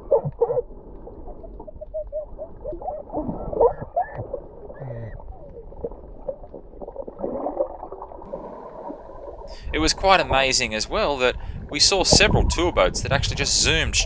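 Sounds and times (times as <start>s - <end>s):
boys laughing and calling underwater: 1.4s - 5.7s
low watery rush: 8.2s - 14.0s.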